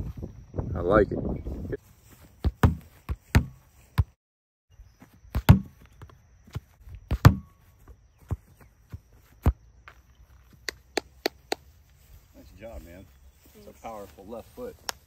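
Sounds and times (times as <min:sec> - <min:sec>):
ball thudding against wooden board: 0:02.4 - 0:04.1, 0:05.3 - 0:06.1, 0:07.1 - 0:07.6.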